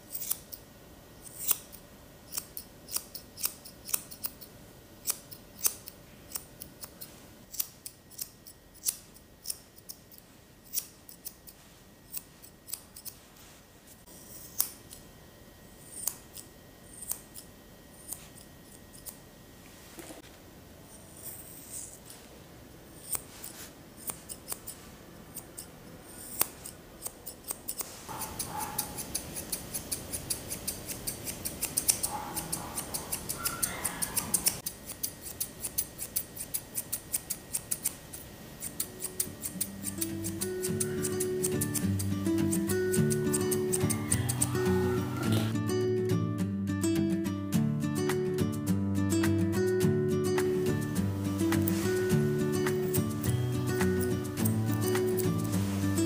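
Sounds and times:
grooming scissors snipping: 0.1 - 0.6, 1.2 - 13.2, 14.1 - 15.0, 15.8 - 19.2, 20.9 - 22.2, 23.0 - 45.5, 50.4 - 55.6.

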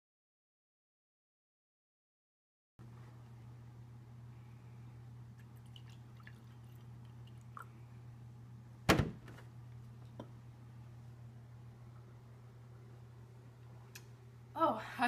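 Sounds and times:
steady low hum: 2.8 - 15.0
milk pouring into a glass: 5.4 - 7.8.

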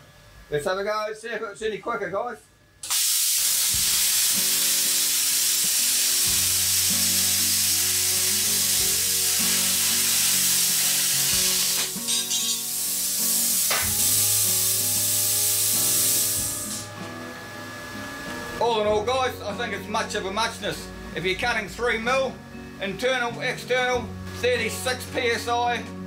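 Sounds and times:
plasma cutter hissing: 2.8 - 16.9.

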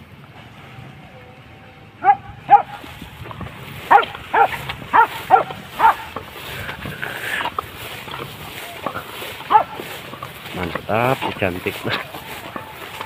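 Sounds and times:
dog barking: 2.0 - 2.9, 3.9 - 6.2, 9.4 - 9.8.

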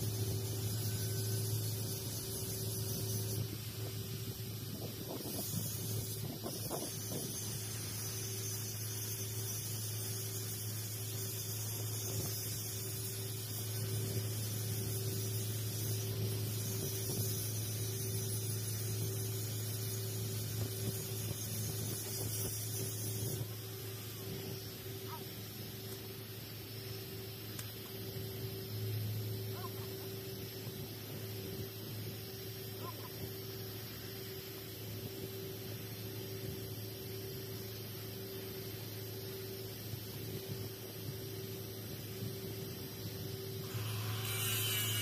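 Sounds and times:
constant low hum: 0.0 - 45.0
welding arc hissing: 0.0 - 45.0.

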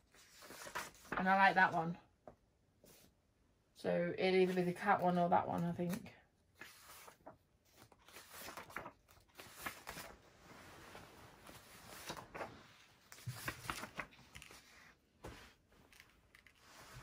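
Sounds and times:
paper pages turning: 0.1 - 1.4, 6.6 - 17.0.

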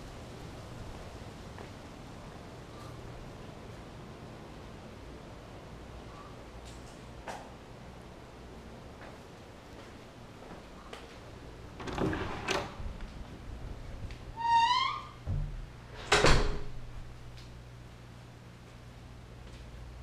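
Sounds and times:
door hinge squeaking: 14.4 - 15.2
door shutting thud: 15.2 - 16.8.

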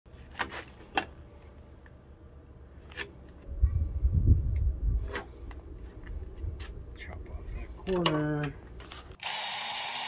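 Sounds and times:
low rumble on microphone: 3.5 - 7.8.

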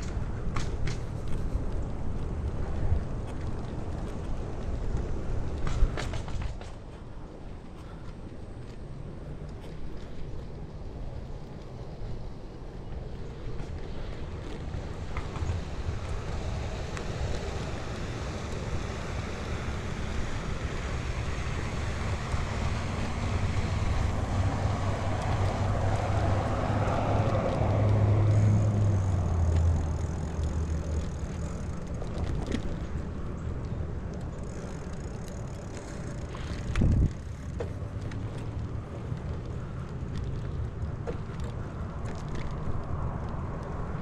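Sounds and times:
passing vehicle road noise: 0.0 - 44.0
wind on microphone: 36.3 - 37.3.

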